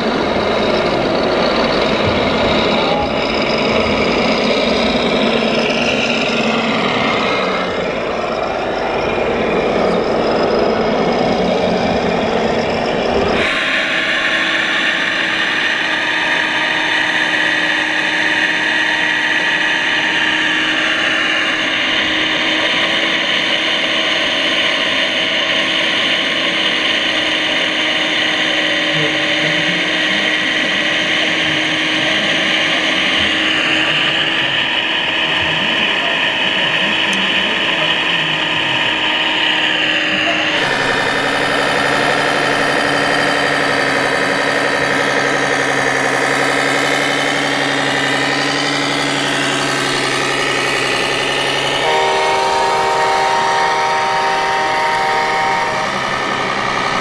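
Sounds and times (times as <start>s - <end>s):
model truck rough running noise: 0.0s - 57.0s
whine of electric motors: 0.0s - 57.0s.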